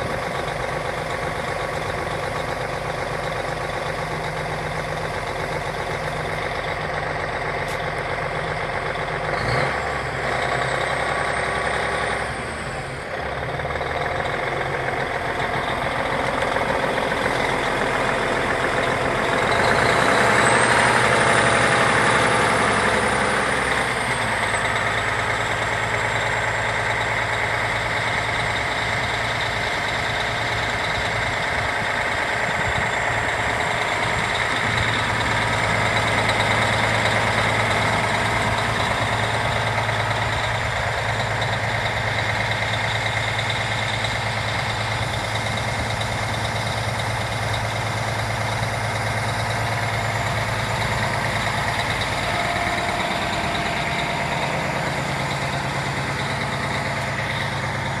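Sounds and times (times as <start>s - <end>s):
diesel engine idling: 0.0s - 58.0s.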